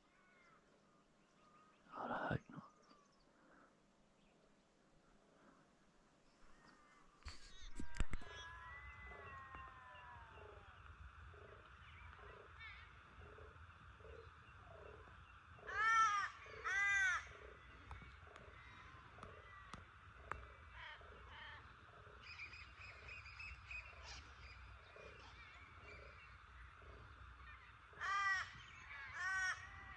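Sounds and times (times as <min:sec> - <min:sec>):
high bird chatter: 0:06.6 - 0:29.9
crow cawing: 0:14.9 - 0:21.6, 0:24.9 - 0:29.9.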